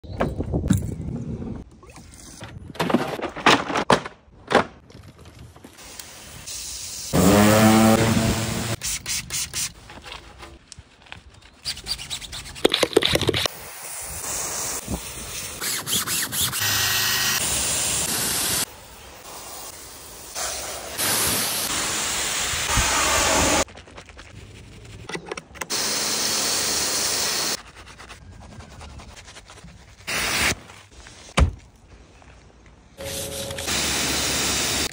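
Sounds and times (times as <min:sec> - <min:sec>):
pressure washer spraying foam: 0:05.8 - 0:09.5, 0:13.6 - 0:23.6, 0:25.7 - 0:27.6, 0:33.0 - 0:34.9
steam cleaner hissing: 0:16.6 - 0:23.6, 0:25.7 - 0:27.6, 0:33.0 - 0:34.9.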